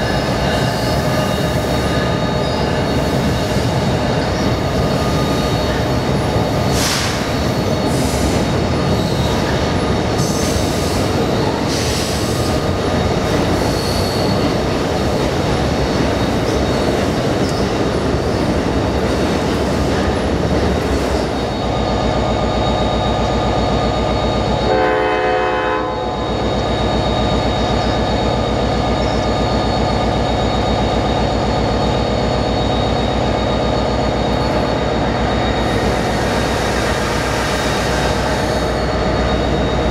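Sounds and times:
steady train hum: 0.0s - 39.9s
train horn: 24.6s - 26.2s.

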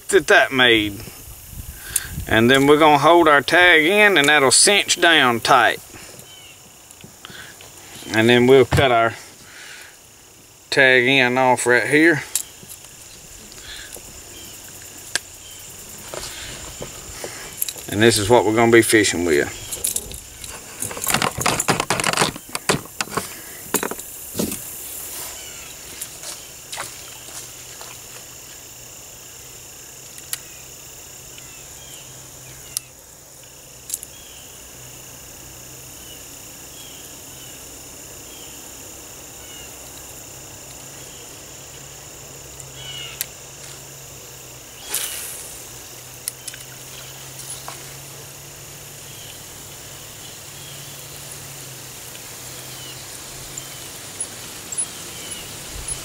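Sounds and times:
handling clicks and rattles: 19.0s - 24.6s, 53.4s - 56.0s.

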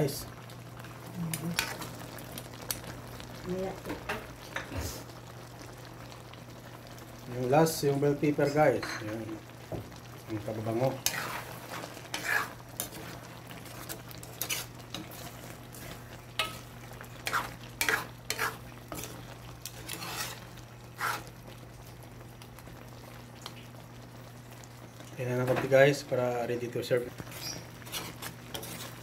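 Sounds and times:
metal spatula scraping a wok: 11.0s - 21.3s, 27.3s - 29.0s.

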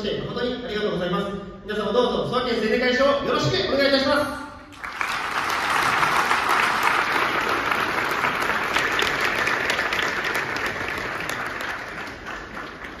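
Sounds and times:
audience applauding: 4.7s - 13.0s.

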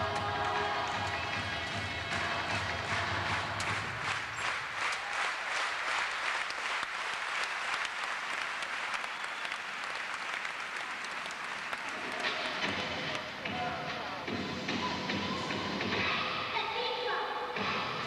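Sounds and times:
music: 0.0s - 4.2s, 11.8s - 18.0s
audience applauding: 2.1s - 13.2s.

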